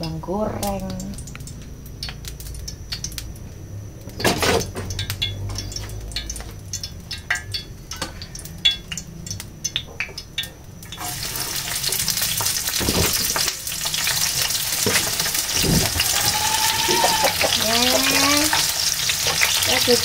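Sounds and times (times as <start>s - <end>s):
oil sizzling in a frying pan: 0.0s - 20.0s
utensils and dishes clinking: 4.2s - 9.1s.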